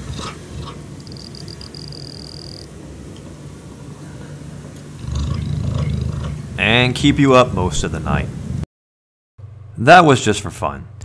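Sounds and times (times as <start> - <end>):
cheetah purring: 0.0 - 2.7, 5.0 - 6.6.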